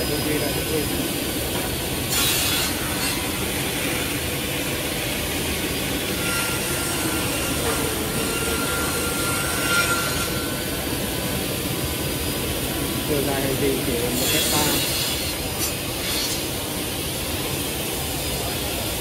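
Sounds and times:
panel saw cutting wood: 13.9 - 16.5.

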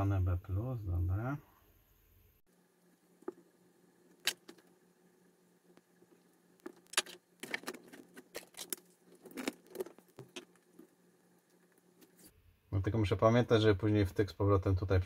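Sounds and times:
faint steady hum: 0.0 - 15.0
small parts clicking and clattering: 4.1 - 4.7, 6.6 - 10.9.

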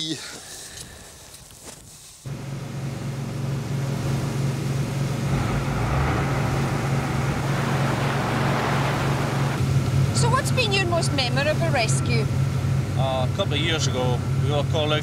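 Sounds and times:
boat diesel engines droning: 2.3 - 15.0
rushing water from bow wave: 3.6 - 10.4.

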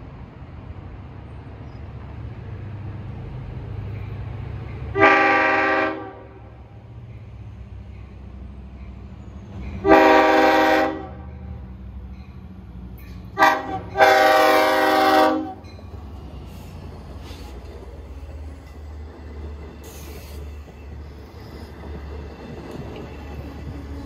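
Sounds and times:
train rumbling past: 0.0 - 24.0
train air horn blasts: 4.9 - 6.5, 9.8 - 11.3, 13.4 - 15.7.

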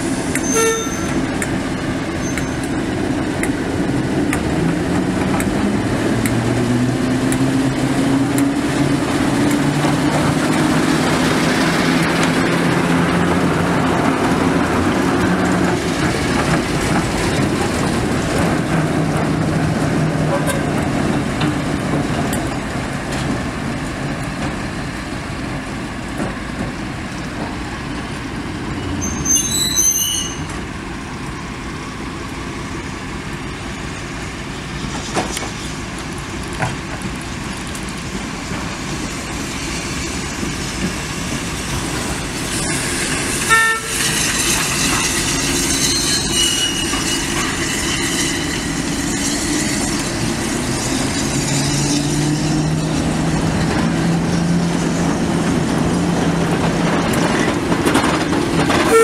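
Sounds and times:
locomotive rumble: 0.0 - 59.0
steam hiss: 38.2 - 52.8.

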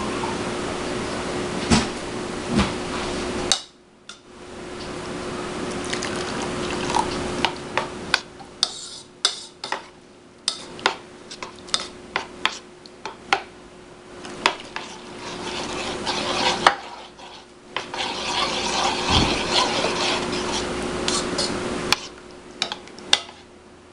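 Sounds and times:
water pouring into bowl: 5.7 - 7.2
spoon stirring sauce: 10.5 - 13.2, 14.2 - 23.5.

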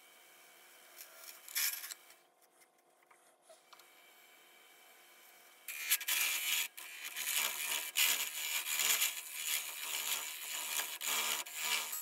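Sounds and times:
turning tool scraping wood: 5.7 - 12.0.

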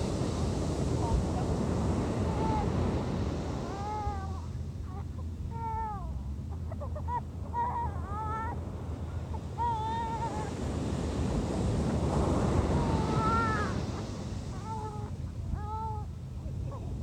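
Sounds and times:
surf breaking on a beach: 0.0 - 4.6, 8.2 - 17.0
gulls calling: 11.6 - 17.0.

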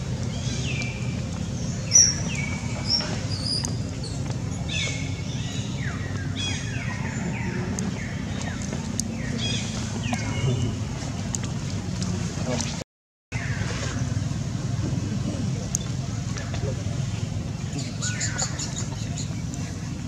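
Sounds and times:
low rumble: 13.4 - 20.0.

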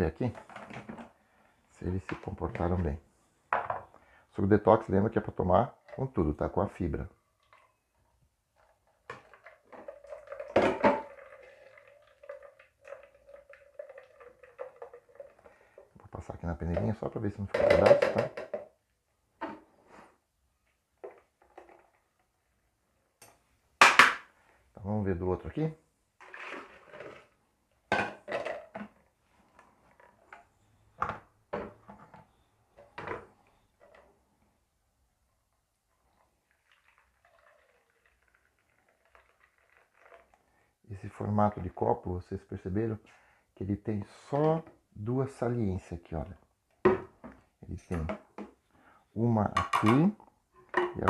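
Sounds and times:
plastic kitchenware clattering: 0.2 - 1.2, 9.0 - 15.9, 16.7 - 18.7, 26.2 - 34.1, 49.5 - 51.0
juice trickling through sieve: 8.6 - 16.0, 26.2 - 27.4, 36.0 - 40.7.

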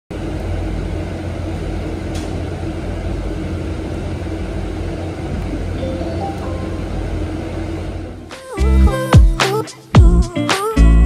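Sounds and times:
bus road and tyre rumble: 0.2 - 5.8.

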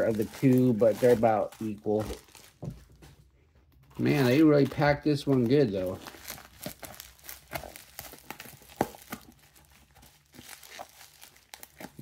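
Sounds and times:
blade cutting parcel: 0.0 - 2.6, 4.0 - 12.0
packing tape and bubble wrap crinkling: 0.0 - 12.0.

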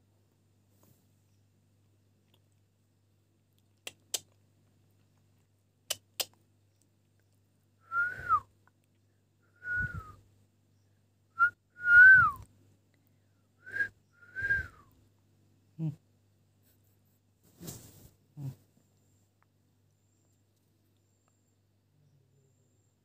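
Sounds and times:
short clear whistles: 7.9 - 8.5, 9.6 - 10.2, 13.7 - 14.9.

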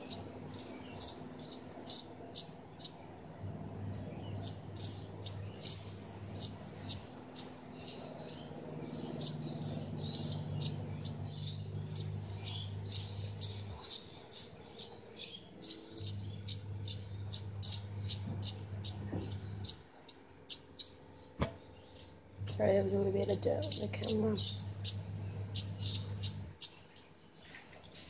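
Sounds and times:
low steady hum: 0.0 - 28.0.

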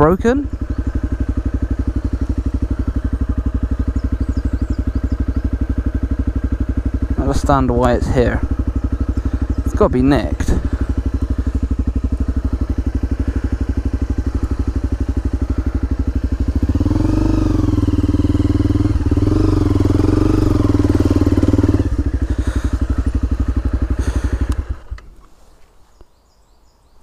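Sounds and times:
dirt bike engine idling and revving: 0.0 - 25.5.

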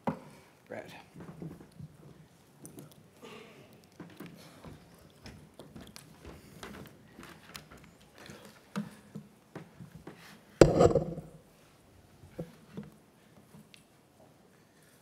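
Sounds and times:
loud thump with low rumble: 10.6 - 11.4.

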